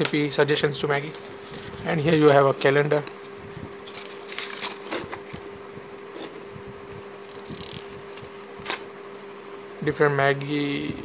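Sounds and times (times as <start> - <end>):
faint steady hum: 0.0 - 11.0
paper and card rustling: 1.0 - 6.4, 7.0 - 8.9.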